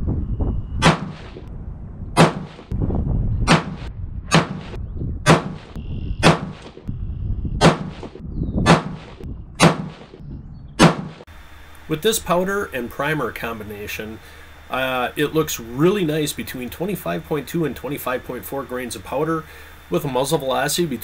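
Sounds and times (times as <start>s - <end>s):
rifle shots with echo: 2.2s - 2.6s, 5.3s - 6.6s, 9.6s - 10.0s.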